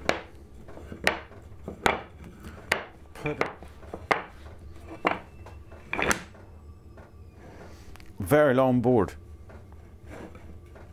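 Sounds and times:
wooden blocks knocking on workbench: 0.0s - 6.4s.

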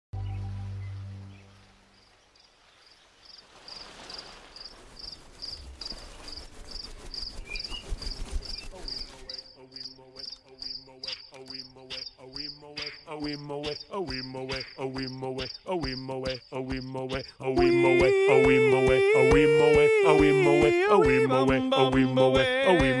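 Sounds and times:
cricket chirping: 1.9s - 17.4s.

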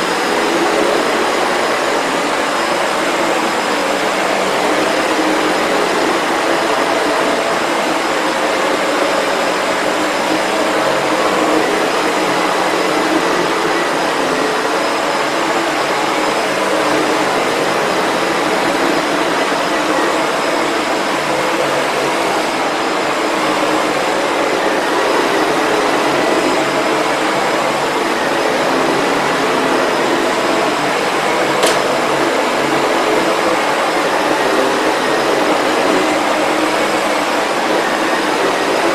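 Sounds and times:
vacuum cleaner on a rug: 0.0s - 38.9s
sharp click: 31.6s - 31.9s.

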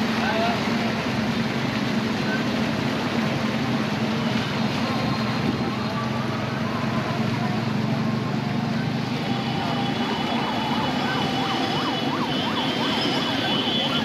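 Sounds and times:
traffic: 0.0s - 14.0s
vehicle engine rumble: 0.0s - 14.0s
water noise: 0.0s - 14.0s
fast yelping siren: 9.2s - 14.0s.

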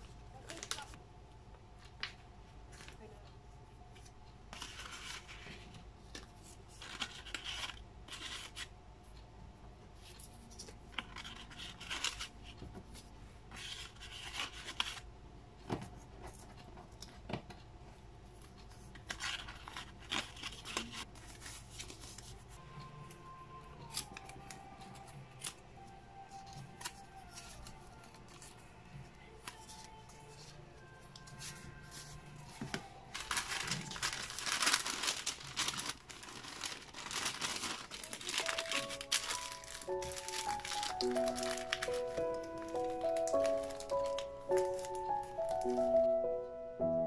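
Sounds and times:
faint background music: 0.0s - 47.0s
paper rustling and sliding: 31.4s - 46.1s.

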